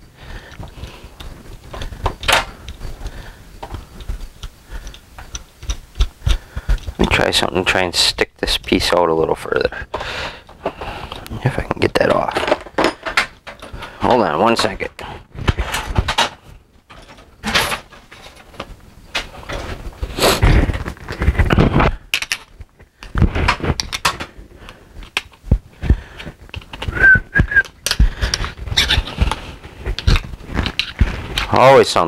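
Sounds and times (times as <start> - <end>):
rustling: 10.0 - 32.0
tools knocking and clattering: 11.9 - 14.0, 15.4 - 19.8
short high squeaks: 28.7 - 29.1.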